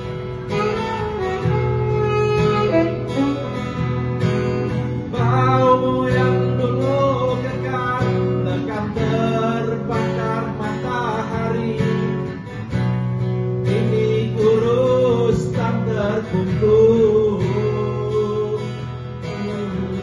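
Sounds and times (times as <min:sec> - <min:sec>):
acoustic guitar: 0:00.0 - 0:20.0
man singing slow song: 0:05.0 - 0:12.5, 0:13.6 - 0:20.0.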